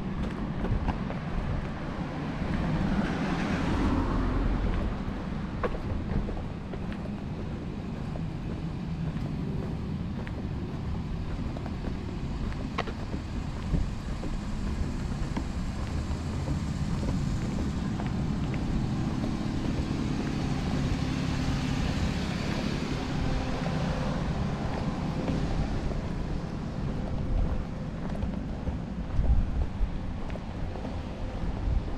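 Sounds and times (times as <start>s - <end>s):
low traffic rumble: 0.0s - 31.9s
vehicle tyre hiss: 12.6s - 24.4s.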